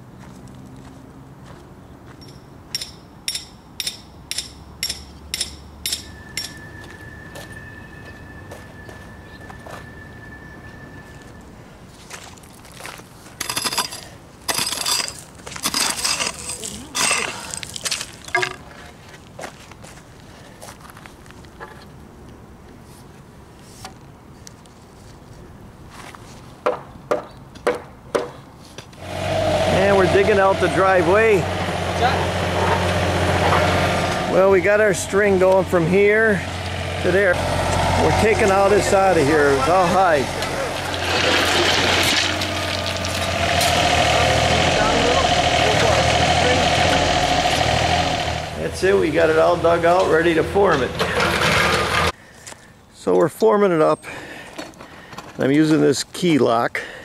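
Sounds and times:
hammer striking metal stake: 0:02.2 - 0:06.6, 0:18.3 - 0:18.6.

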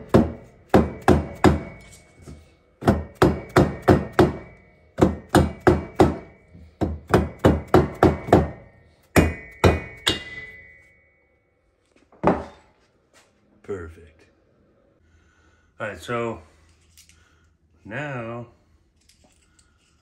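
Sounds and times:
mallet tapping on metal: 0:00.1 - 0:01.8, 0:02.8 - 0:10.9.

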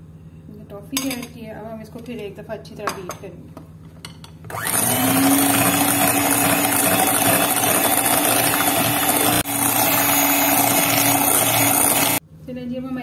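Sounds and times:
electric hand mixer running: 0:04.5 - 0:12.2.

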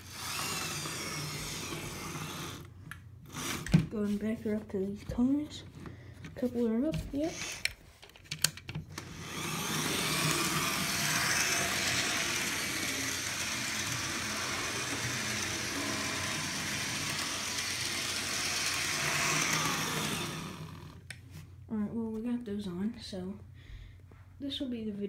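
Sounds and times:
model train running on track: 0:09.2 - 0:20.8.

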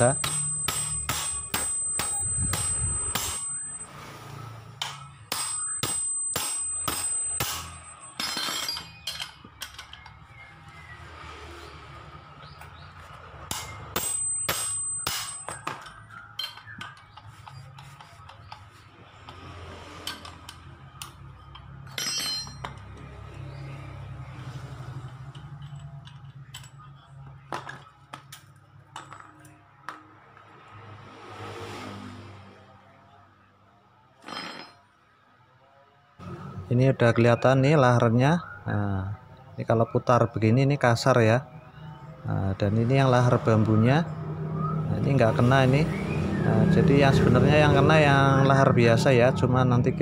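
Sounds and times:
hammer striking a spanner: 0:00.0 - 0:10.2, 0:13.5 - 0:23.0
metal parts clinking: 0:04.8 - 0:10.3, 0:13.5 - 0:18.7, 0:20.0 - 0:23.0, 0:25.0 - 0:26.9, 0:34.2 - 0:34.9.

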